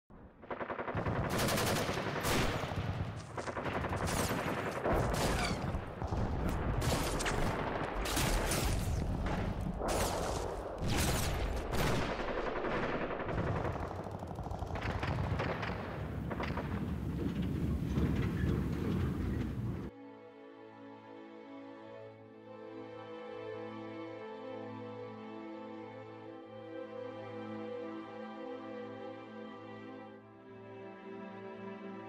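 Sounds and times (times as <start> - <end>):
rapid gunshots: 0.3 - 18.1
machine-gun fire: 0.4 - 18.2.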